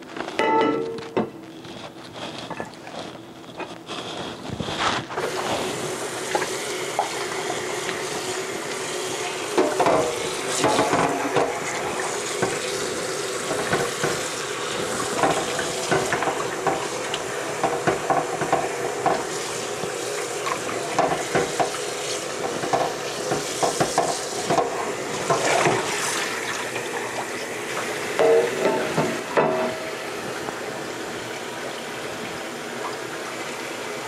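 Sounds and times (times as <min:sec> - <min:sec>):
glass dish knocking against sink: 0:00.4 - 0:01.3
hands rubbing fish: 0:01.6 - 0:05.2
faucet water splashing: 0:05.2 - 0:34.0.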